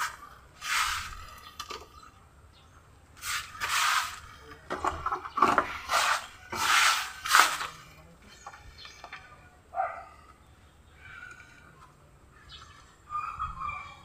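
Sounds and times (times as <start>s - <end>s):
hands scooping soil rustling: 0.0s - 1.5s, 3.2s - 4.5s, 5.6s - 8.0s.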